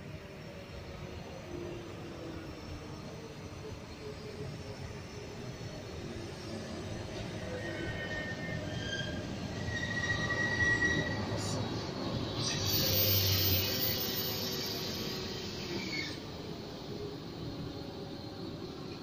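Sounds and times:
train wheels squealing: 0.6 - 19.0
hiss: 12.3 - 16.2.

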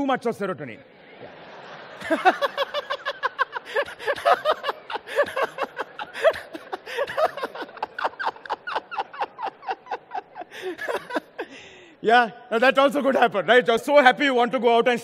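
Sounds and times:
man laughing hard: 1.8 - 11.7.

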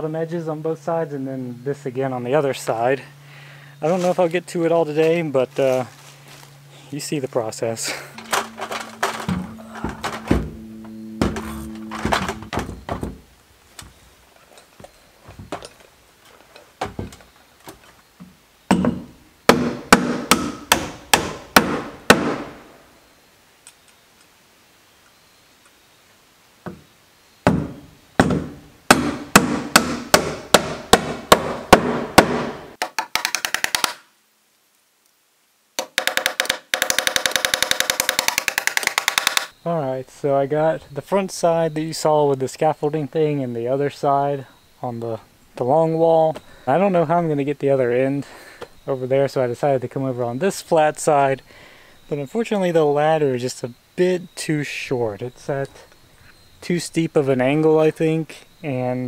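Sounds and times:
hammer driving nails into plywood: 18.7 - 22.5, 27.5 - 34.0, 35.8 - 39.5.

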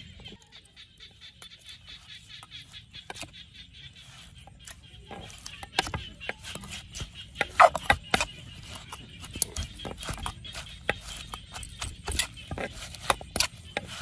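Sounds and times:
spoon scraping wooden mortar: 0.0 - 14.0
pestle tapping: 4.5 - 14.0.

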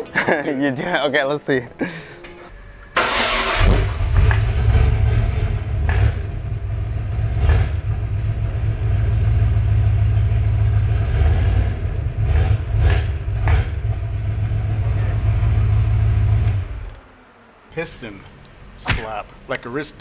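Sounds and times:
mechanic talking: 17.7 - 20.0.

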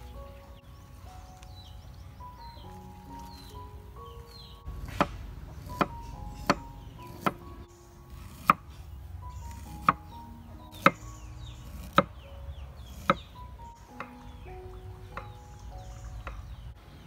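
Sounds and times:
soft background music: 0.0 - 17.0
cleaver chopping on wooden board: 4.8 - 7.4, 11.7 - 12.1, 12.9 - 13.3.

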